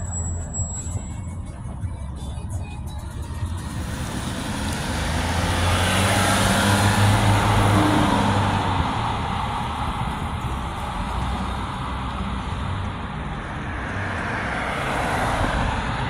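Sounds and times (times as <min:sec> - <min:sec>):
cars passing close by: 0:03.5 - 0:16.0.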